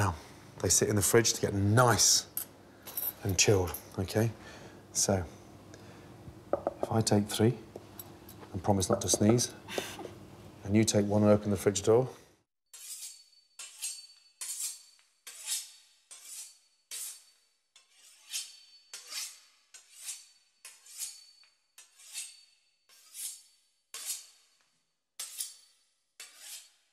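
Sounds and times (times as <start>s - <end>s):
knife blade scraping metal: 12.8s - 24.6s, 25.2s - 26.9s.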